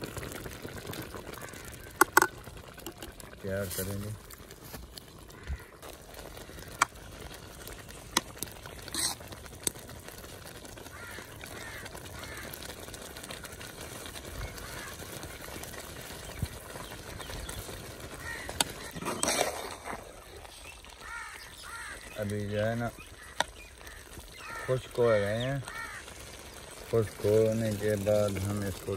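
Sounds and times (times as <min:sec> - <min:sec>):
rice bubbling in pot: 0:00.0 - 0:28.9
metal skimmer scraping rice in pot: 0:08.9 - 0:09.3, 0:18.6 - 0:20.0.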